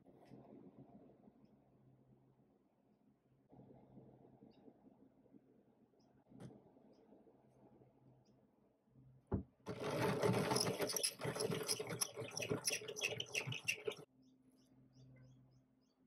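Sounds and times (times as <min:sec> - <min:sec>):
pencil sharpener grinding pencil: 0:09.7 - 0:14.0.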